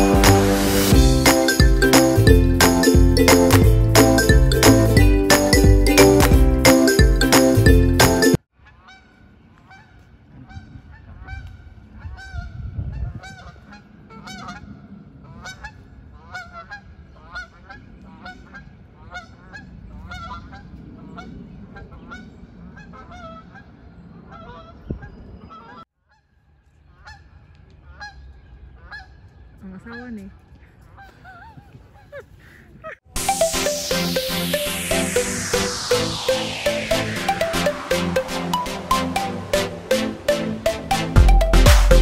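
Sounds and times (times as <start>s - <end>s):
geese honking: 13.2s - 20.6s, 21.9s - 24.9s.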